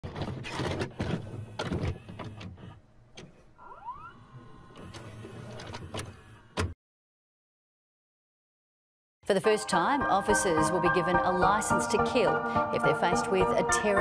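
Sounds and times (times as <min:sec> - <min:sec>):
tape mechanism clunks and clicks: 0:00.0 - 0:03.5.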